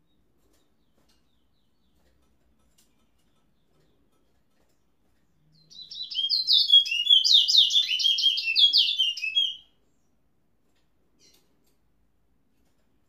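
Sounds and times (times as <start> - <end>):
finch singing: 5.5 - 9.7.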